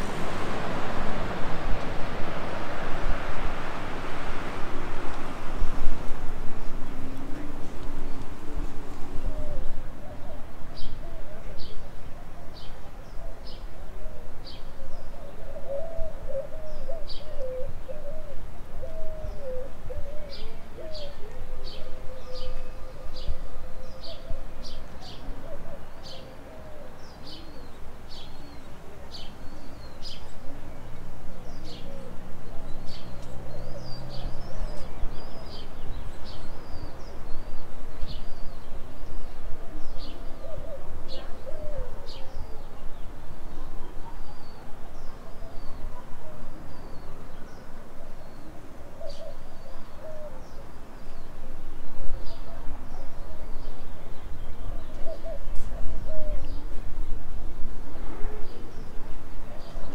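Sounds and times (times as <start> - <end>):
low city rumble: 0.0 - 59.9.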